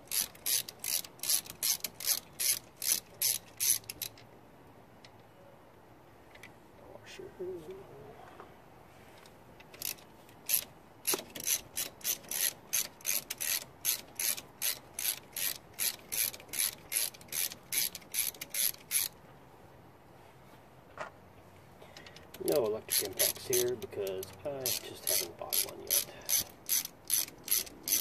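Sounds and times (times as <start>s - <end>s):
socket ratchet clicking: 0.1s - 4.2s, 9.7s - 19.1s, 22.1s - 28.0s.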